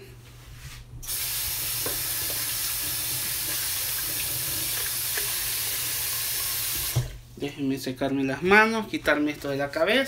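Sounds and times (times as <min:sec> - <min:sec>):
faucet running into sink: 0:01.0 - 0:07.2
hands being washed: 0:01.0 - 0:07.2.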